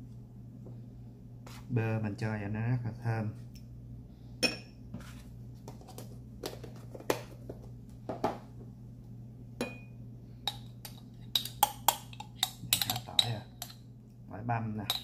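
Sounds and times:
steady low hum: 0.0 - 15.0
metal spoon clinking on glass bowl: 10.5 - 13.8.

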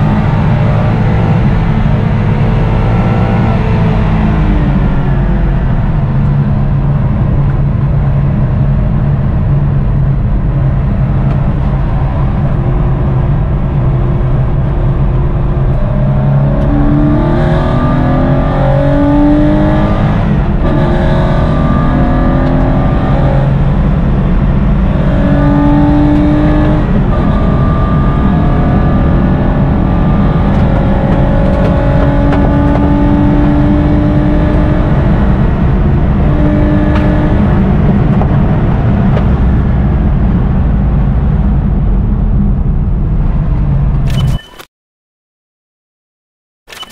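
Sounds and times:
race car engine revving: 0.0 - 42.1
gear changes: 13.7 - 40.1.

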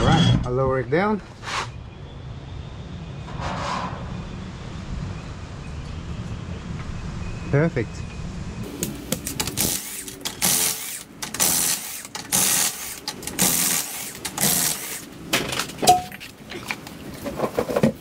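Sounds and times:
power tool running in bursts: 9.6 - 15.1.

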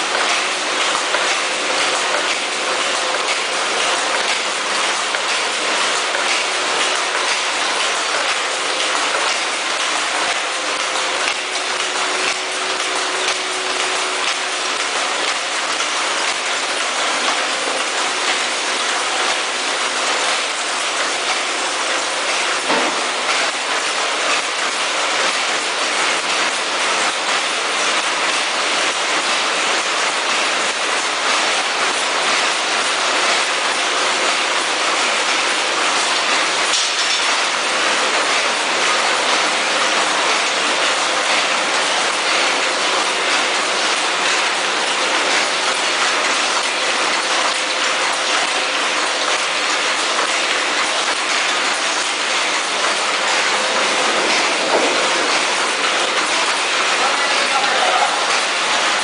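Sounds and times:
packing machines clattering: 48.3 - 59.0.

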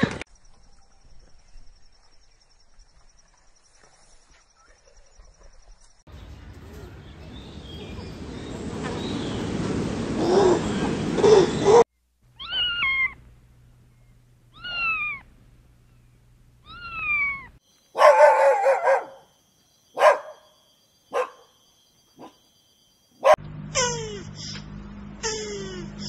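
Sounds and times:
cat meowing: 12.4 - 13.2, 14.5 - 15.3, 16.6 - 17.6
dog barking: 18.0 - 19.3, 20.0 - 20.5, 21.1 - 21.5, 22.2 - 22.4, 23.2 - 23.4.

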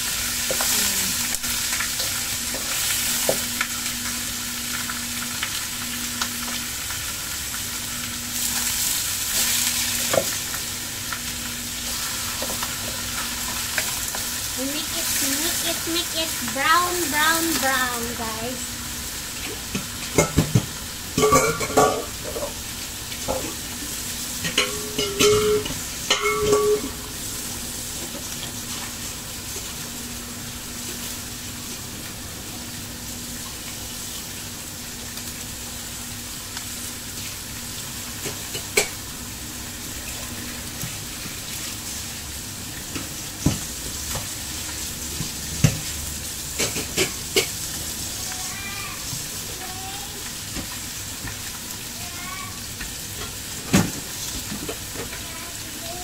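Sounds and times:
fish sizzling in hot oil: 0.0 - 56.0
kitchen utensils clattering: 21.2 - 22.6, 24.5 - 27.0.

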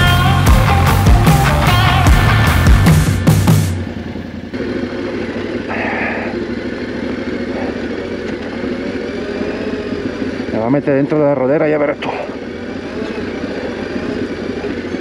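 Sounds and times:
music: 0.0 - 3.8
motorcycle engine running: 0.0 - 15.0.

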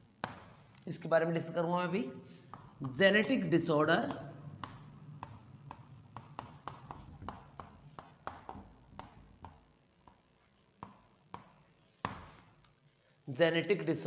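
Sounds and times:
chalk tapping on chalkboard: 2.4 - 3.0, 4.0 - 10.2, 10.8 - 12.4.

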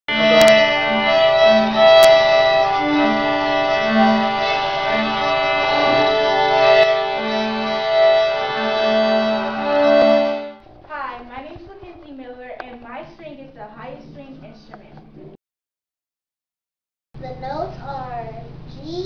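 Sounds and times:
string ensemble playing slow tune: 0.1 - 10.6.

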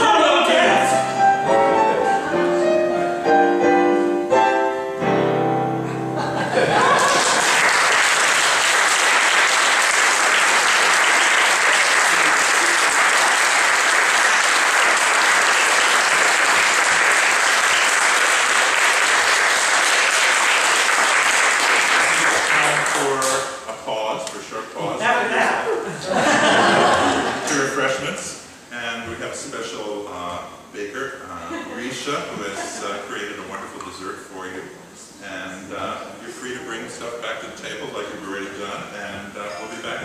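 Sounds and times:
piano chords: 0.0 - 7.8
audience applause: 6.5 - 23.5.

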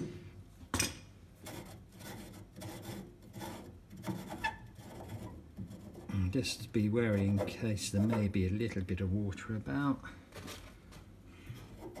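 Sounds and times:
threads rasping when unscrewed: 6.7 - 8.4.

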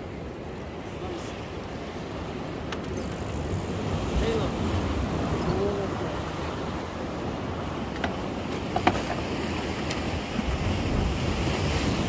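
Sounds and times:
sea waves washing: 0.0 - 12.0
wind buffeting microphone: 3.3 - 12.0.

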